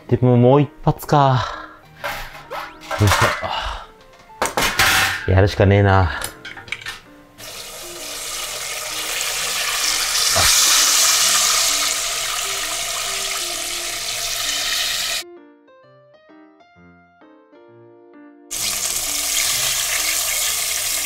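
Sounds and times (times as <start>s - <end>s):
chicken sizzling in hot oil: 7.4s - 15.2s, 18.5s - 21.0s.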